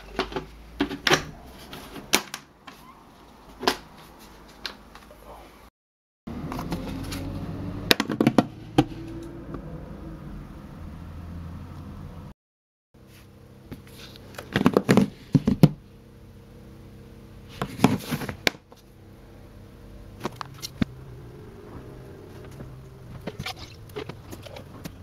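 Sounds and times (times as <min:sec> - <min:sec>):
low steady hum: 0:13.0 - 0:25.0.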